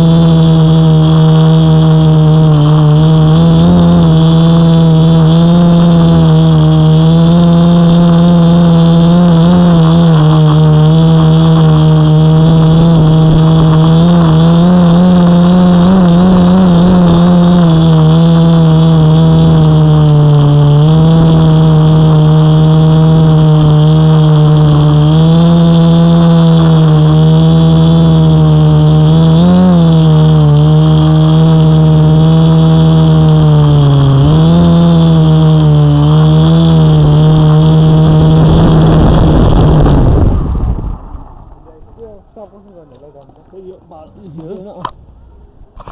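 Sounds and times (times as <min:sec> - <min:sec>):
drone propellers humming: 0:00.0 - 0:45.9.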